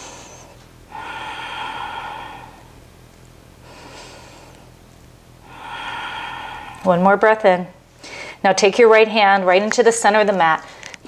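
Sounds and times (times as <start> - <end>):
woman breathing slowly: 0.0 - 2.9, 3.6 - 4.8, 5.4 - 7.1, 7.9 - 8.4.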